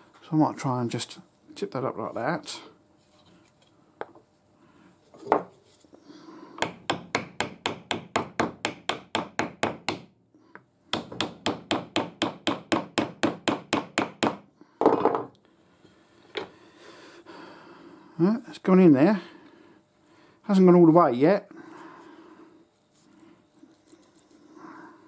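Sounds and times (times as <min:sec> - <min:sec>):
hammer tapping on wood block: 0:06.6 - 0:10.1, 0:10.9 - 0:14.4.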